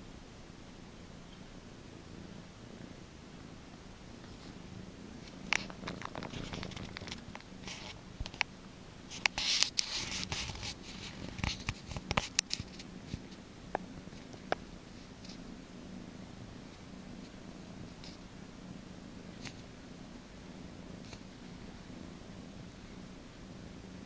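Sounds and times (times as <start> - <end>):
cat purring: 0.0 - 24.0
clicks and rustling: 5.2 - 8.5, 9.1 - 15.4.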